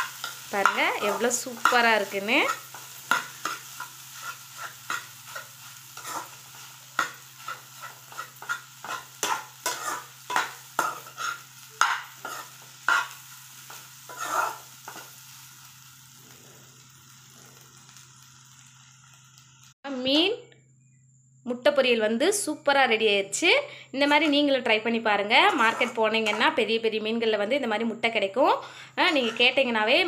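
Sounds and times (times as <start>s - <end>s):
metal spatula scraping a pan: 0.0s - 15.5s, 24.0s - 24.5s, 25.4s - 26.6s, 28.6s - 29.8s
faint sizzle: 0.0s - 20.4s, 22.0s - 30.0s.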